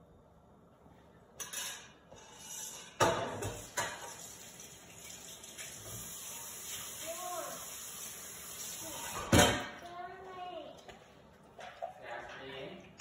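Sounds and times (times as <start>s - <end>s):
metal utensils and cookware knocking: 1.4s - 4.2s.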